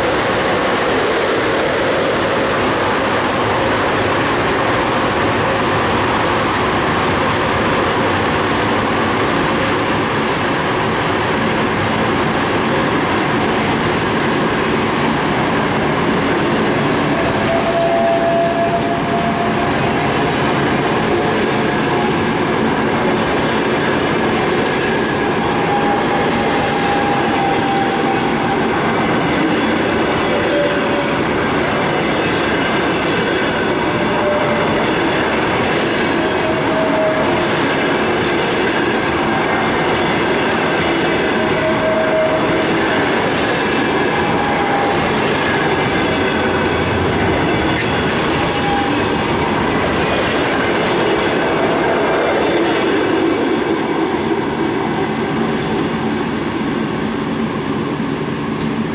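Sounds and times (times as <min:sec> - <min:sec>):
train wheels rumbling on rails: 0:00.0 - 0:58.9
clickety-clack over rail joints: 0:11.3 - 0:56.0.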